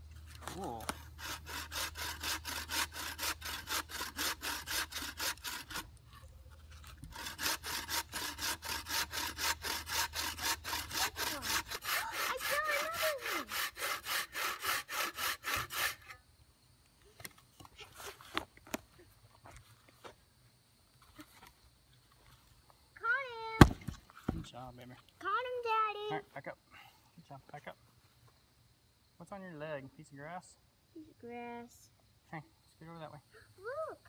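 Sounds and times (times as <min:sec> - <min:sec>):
hand saw cutting a log: 0:00.6 - 0:16.2.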